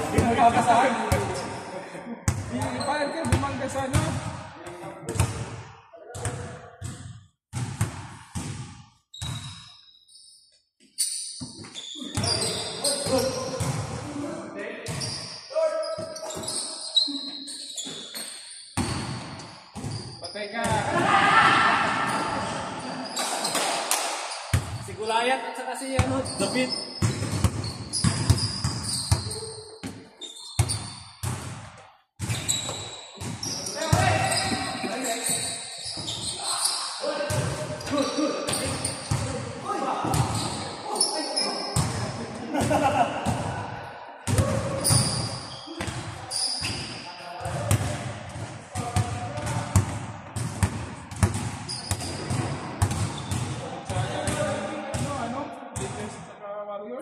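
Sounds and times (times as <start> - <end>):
shoes squeaking on court: 9.1 - 13.8, 14.9 - 20.6, 22.1 - 24.9, 25.9 - 39.4, 40.0 - 42.0, 44.4 - 47.8, 51.2 - 53.6
basketball bouncing on hardwood floor: 27.0 - 30.0, 47.5 - 53.5.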